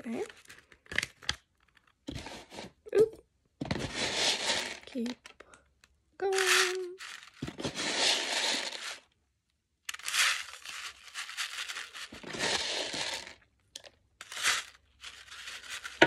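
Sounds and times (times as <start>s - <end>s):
paper funnel crinkling: 3.7s - 5.4s, 6.2s - 9.1s, 9.9s - 13.4s, 14.2s - 16.0s.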